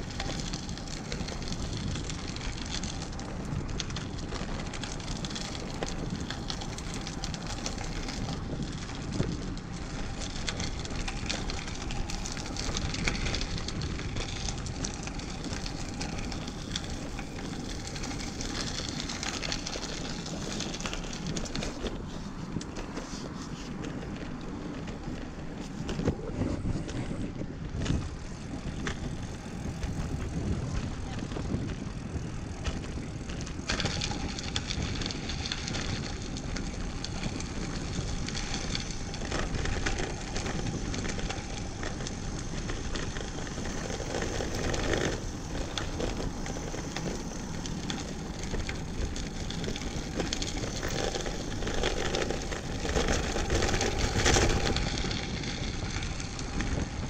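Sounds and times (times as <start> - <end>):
bike tyres rolling: 0.0 - 57.0
wind rushing over microphone: 0.0 - 57.0.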